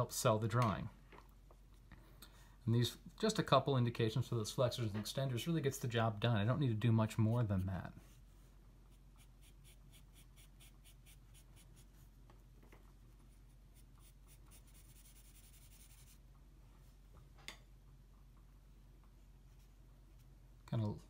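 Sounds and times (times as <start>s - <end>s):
pencil strokes on paper: 7.1s - 12.2s, 13.0s - 16.2s.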